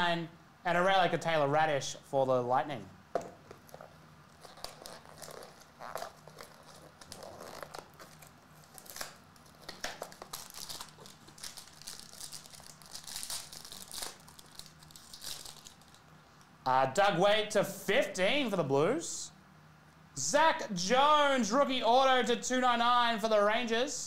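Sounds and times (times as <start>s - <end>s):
packaging crinkling and tearing: 3.6s - 16.1s.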